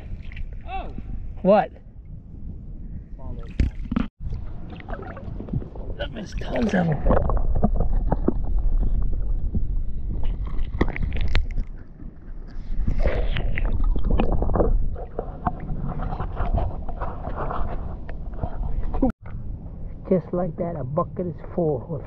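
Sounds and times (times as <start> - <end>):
underwater sloshing and gurgling: 2.0 - 19.0
heavy underwater rumble: 2.0 - 19.5.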